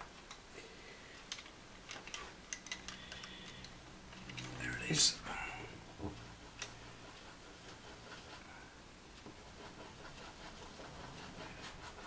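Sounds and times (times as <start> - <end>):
pencil scratching on paper: 5.8 - 12.0.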